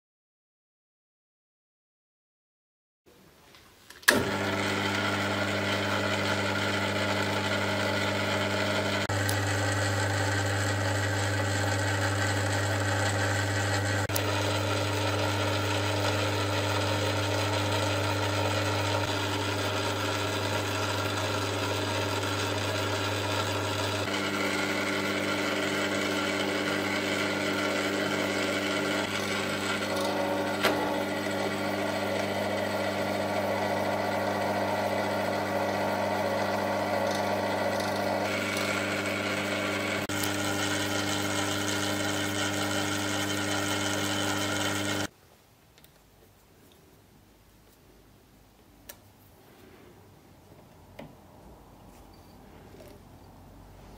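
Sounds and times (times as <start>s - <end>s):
lathe motor hum: 4.1s - 45.1s.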